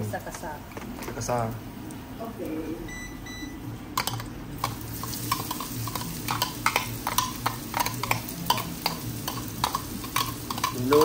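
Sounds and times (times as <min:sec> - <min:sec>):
paste sizzling in hot oil: 0:04.6 - 0:11.0.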